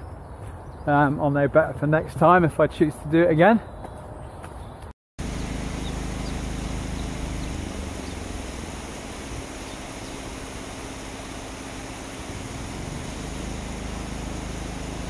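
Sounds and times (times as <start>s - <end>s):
flowing river water: 5.2s - 15.0s
road traffic rumble: 5.2s - 15.0s.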